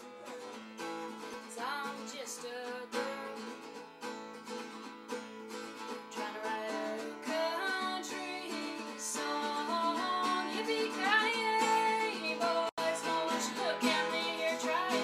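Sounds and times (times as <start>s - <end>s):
acoustic guitar strumming: 0.0s - 15.0s
woman singing: 1.4s - 3.6s, 6.1s - 15.0s.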